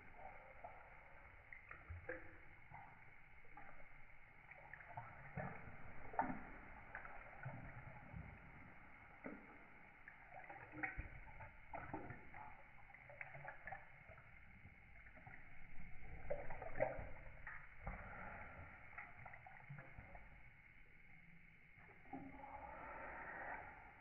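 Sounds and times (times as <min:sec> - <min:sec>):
dog lapping water from bowl: 0:00.0 - 0:20.5, 0:21.1 - 0:24.0.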